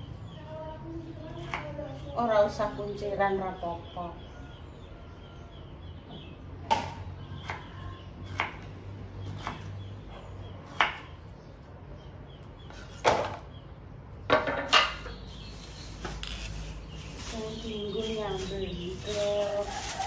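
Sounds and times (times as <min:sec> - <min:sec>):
knife chopping on wooden board: 0:09.3 - 0:09.7, 0:10.6 - 0:11.1.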